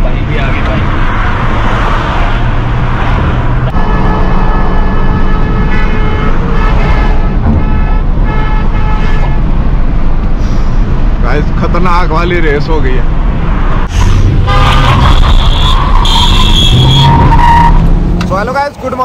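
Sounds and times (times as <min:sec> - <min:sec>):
car road and wind noise: 0:00.0 - 0:19.0
vehicle horn blasts and toots: 0:03.7 - 0:09.4, 0:14.4 - 0:17.8.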